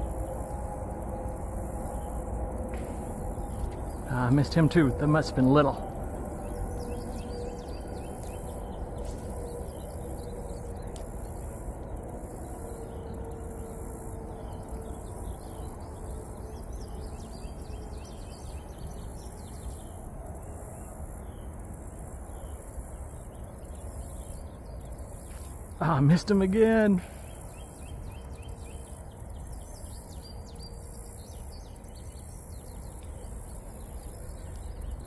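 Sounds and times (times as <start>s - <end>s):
high-pitched insect chorus: 0.0s - 35.0s
low background hiss: 9.4s - 35.0s.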